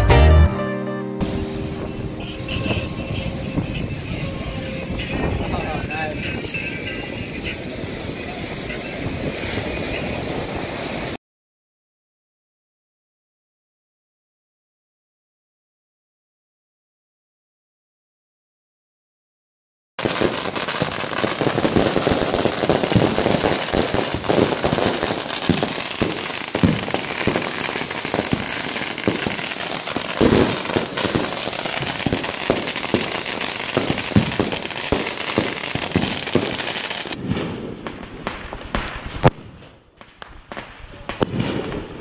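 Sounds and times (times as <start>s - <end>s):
fireworks crackling: 1.2s - 11.2s, 20.0s - 42.0s
firecracker bangs: 20.0s - 42.0s.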